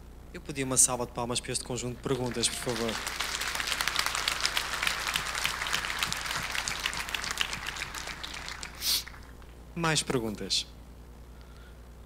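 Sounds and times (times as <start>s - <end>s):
audience applauding: 2.0s - 9.6s
short loud hiss: 8.8s - 9.2s.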